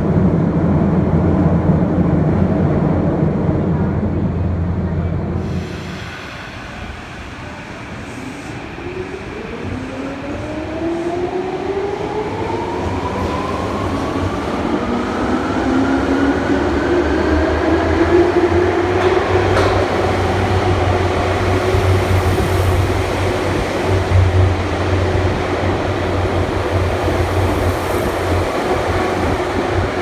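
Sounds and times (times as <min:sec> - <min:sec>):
train wheels rumbling: 0:00.0 - 0:30.0.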